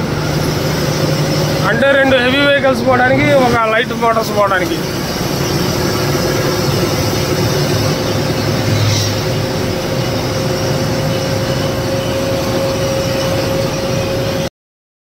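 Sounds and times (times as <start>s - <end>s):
lorry engine drone: 0.0s - 14.5s
road noise: 0.0s - 14.5s
steady whine: 0.0s - 14.5s.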